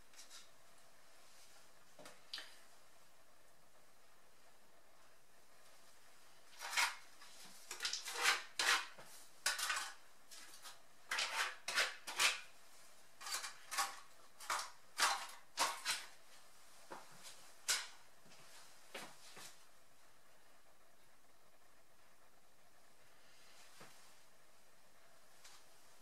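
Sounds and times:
utensil scraping containers: 6.5s - 12.5s, 13.2s - 16.2s.

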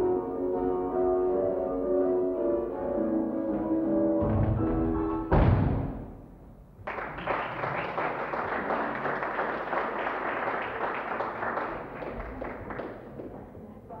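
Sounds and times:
group of people clapping: 6.8s - 13.6s.

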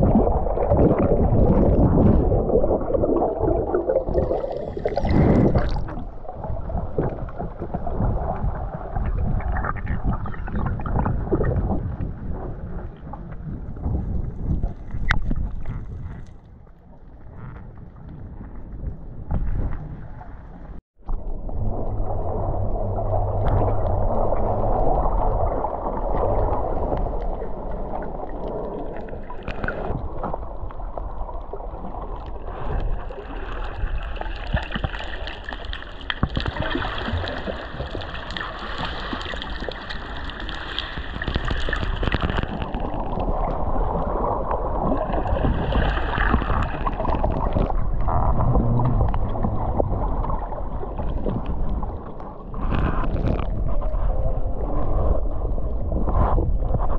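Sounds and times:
water sloshing and gurgling: 0.0s - 56.9s.

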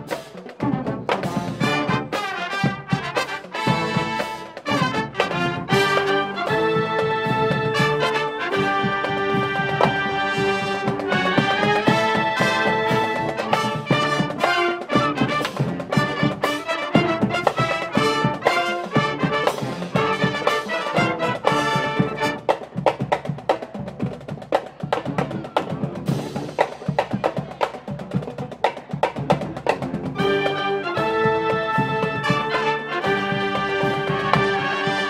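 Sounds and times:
marching band playing: 0.0s - 35.0s.

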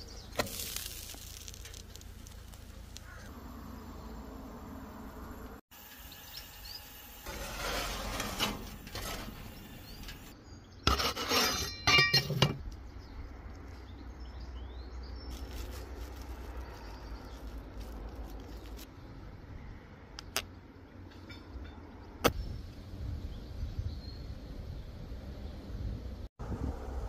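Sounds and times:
clinks and clattering knocks: 11.7s - 12.6s.

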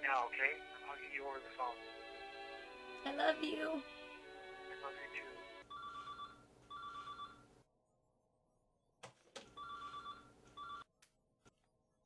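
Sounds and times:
telephone ringing: 5.6s - 7.5s, 9.5s - 10.9s.

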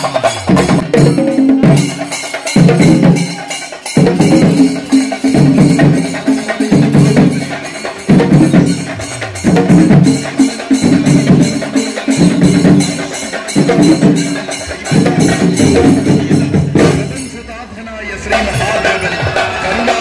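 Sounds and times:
fast drum strokes: 0.0s - 17.4s.

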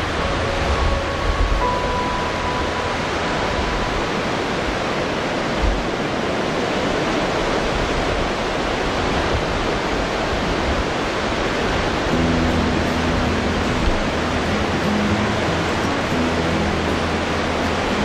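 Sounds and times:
ocean surf breaking on beach: 0.0s - 18.0s.

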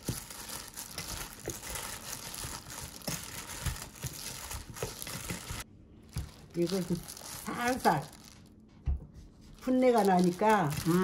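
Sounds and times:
plastic glove crinkling: 0.0s - 8.7s, 9.3s - 11.0s
vegetables rustling in a bowl: 0.0s - 8.7s, 9.3s - 11.0s.

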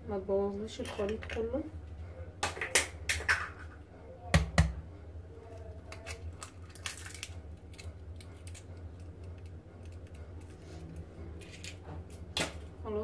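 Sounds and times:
steady low hum: 0.0s - 13.0s
eggshells cracking: 5.8s - 10.6s.

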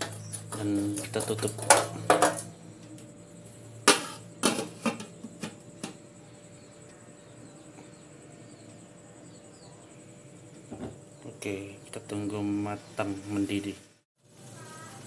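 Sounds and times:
faint steady hiss: 10.6s - 15.0s.

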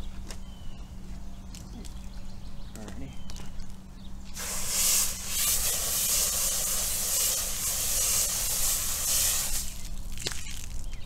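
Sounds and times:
foam gun spraying: 4.4s - 9.9s.

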